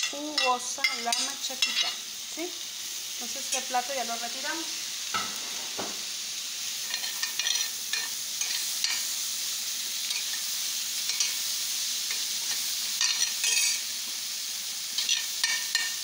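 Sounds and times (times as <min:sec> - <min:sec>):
spoon scraping a pan: 0:00.0 - 0:02.0, 0:06.8 - 0:09.2, 0:10.0 - 0:13.9, 0:14.9 - 0:16.0
food sizzling in a skillet: 0:00.0 - 0:16.0.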